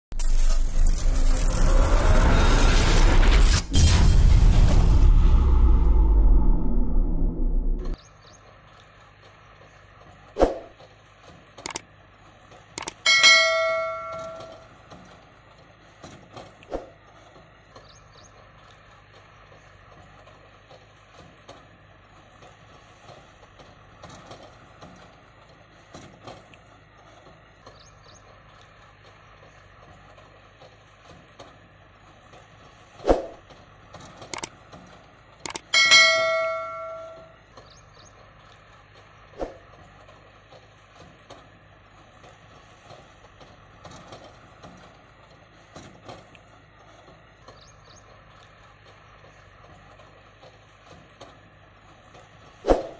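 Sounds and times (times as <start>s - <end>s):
loud ringing metallic clang: 0.4s - 8.0s, 13.0s - 14.8s, 35.7s - 37.4s.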